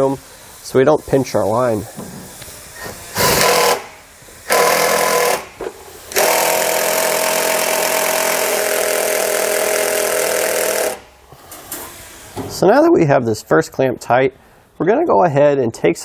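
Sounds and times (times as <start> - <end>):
cordless drill whining: 2.4 - 11.0.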